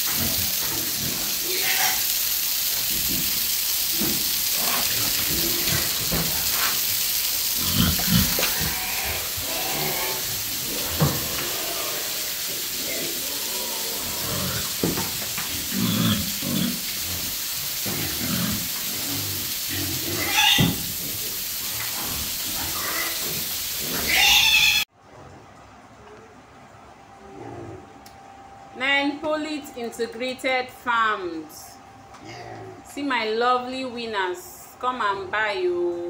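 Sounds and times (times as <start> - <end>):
steady hiss: 0.0 - 24.9
pigs grunting: 3.9 - 6.9, 7.5 - 24.8, 32.2 - 32.9.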